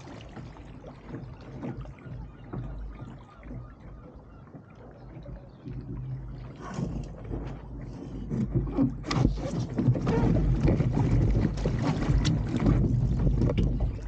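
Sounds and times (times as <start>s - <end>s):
sharp water splashes: 0.0s - 4.1s
water slapping against boat hull: 0.0s - 14.0s
wind buffeting microphone: 4.9s - 14.0s.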